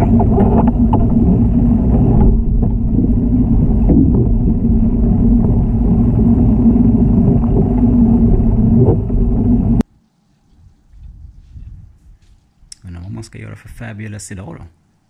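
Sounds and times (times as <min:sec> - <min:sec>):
underwater hot tub jets rumbling: 0:00.0 - 0:09.9.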